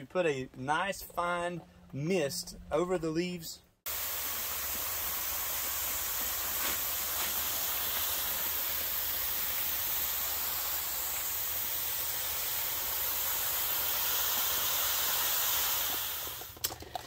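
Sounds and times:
mist nozzles hissing: 0:03.9 - 0:16.6.

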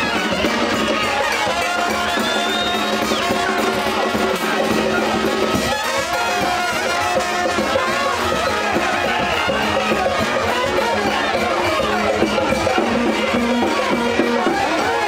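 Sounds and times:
music with brass instruments: 0:00.0 - 0:15.0.

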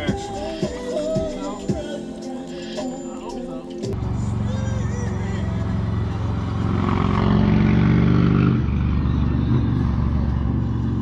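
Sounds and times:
outboard boat motor idling: 0:04.0 - 0:06.4.

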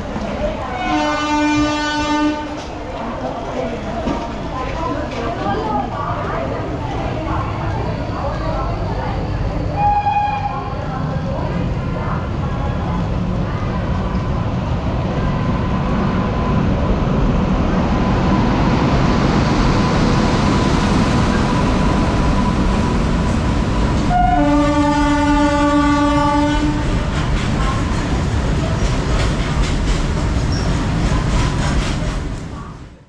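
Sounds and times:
freight train rumbling past: 0:00.0 - 0:33.0
train horn chord: 0:00.8 - 0:02.5, 0:24.1 - 0:26.8.

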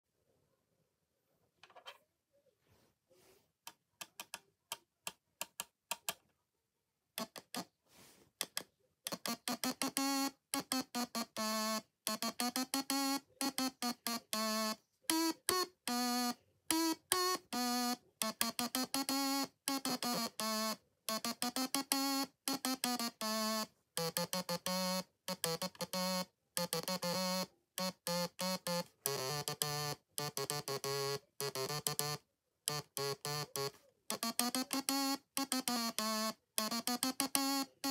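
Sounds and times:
stylophone melody: 0:09.1 - 0:37.9.

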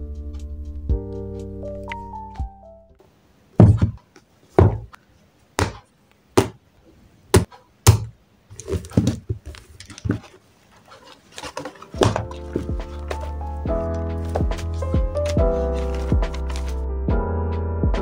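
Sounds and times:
books thudding on a desk: 0:03.6 - 0:04.0, 0:04.6 - 0:04.9, 0:07.4 - 0:10.3, 0:11.4 - 0:13.3
book handling noise: 0:08.0 - 0:16.8.

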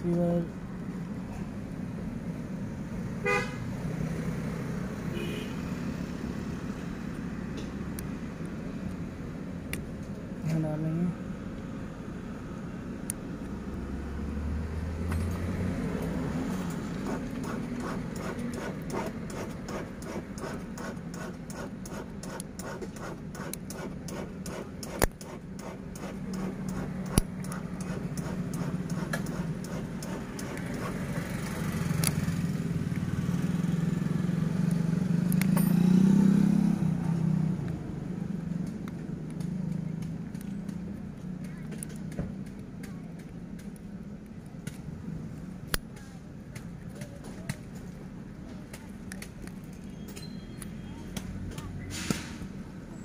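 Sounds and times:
traffic hum: 0:00.0 - 0:53.0
sharp clicks: 0:16.0 - 0:32.2.

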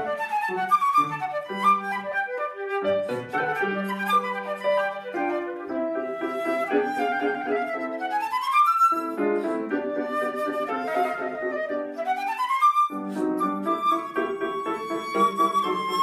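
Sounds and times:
flute melody: 0:00.0 - 0:16.0
piano chords: 0:00.0 - 0:16.0.

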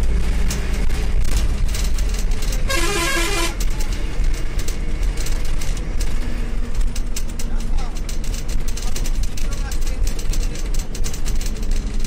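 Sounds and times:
bus engine and tyres rumbling: 0:00.0 - 0:12.0
vehicle horn pulses: 0:02.6 - 0:03.7.

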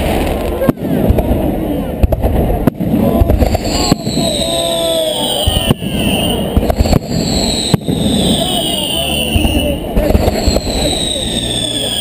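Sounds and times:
fireworks bursting: 0:00.0 - 0:12.0
fireworks crackling: 0:00.0 - 0:12.0
high falling whistle: 0:03.4 - 0:12.0.

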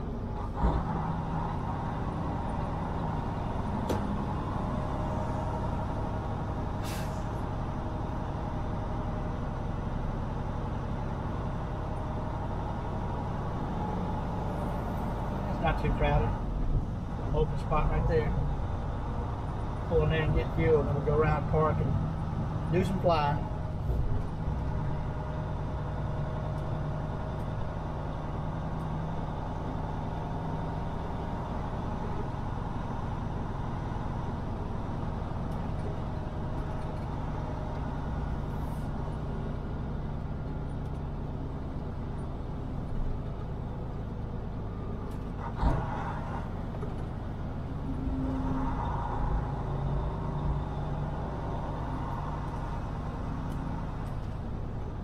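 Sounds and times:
diesel truck engine running: 0:00.0 - 0:55.0.

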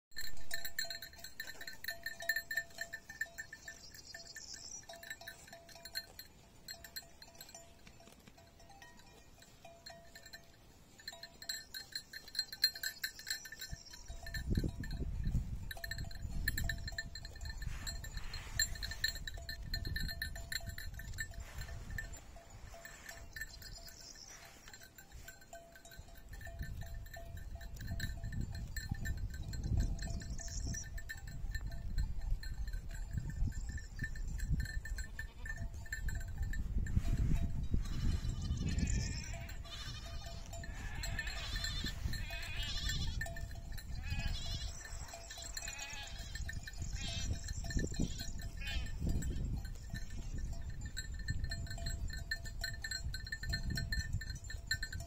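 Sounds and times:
sheep bleating: 0:37.8 - 0:43.2, 0:44.0 - 0:44.9, 0:45.6 - 0:46.4, 0:48.6 - 0:48.9.

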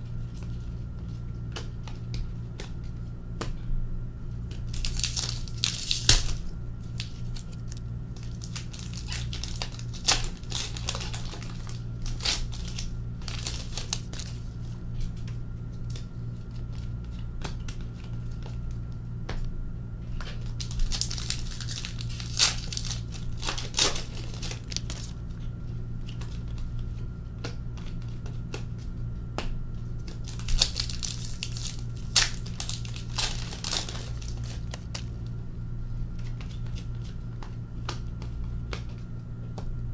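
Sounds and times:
steady low hum: 0:00.0 - 0:39.9
card pack wrappers tearing: 0:04.6 - 0:14.7, 0:20.4 - 0:25.2, 0:30.0 - 0:35.3.

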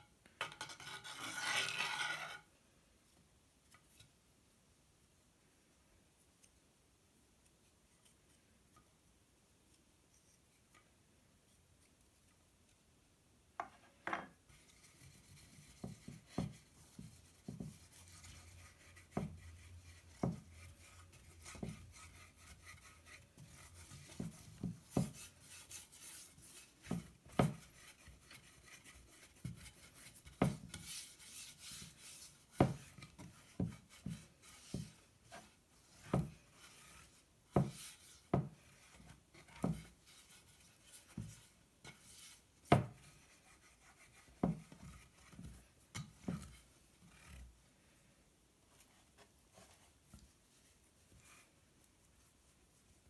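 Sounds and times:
hands scraping clay dish: 0:00.4 - 0:02.5, 0:14.3 - 0:47.6.

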